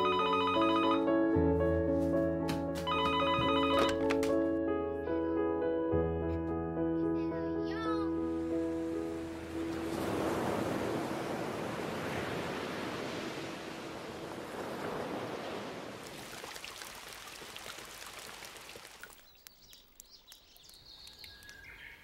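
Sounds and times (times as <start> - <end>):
sea surf washing: 8.5 - 19.0.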